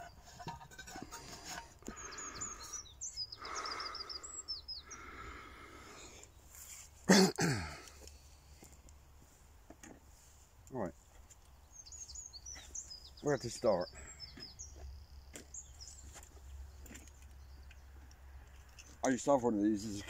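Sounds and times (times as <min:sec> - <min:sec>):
small birds chirping: 0:00.0 - 0:06.9, 0:07.7 - 0:20.0.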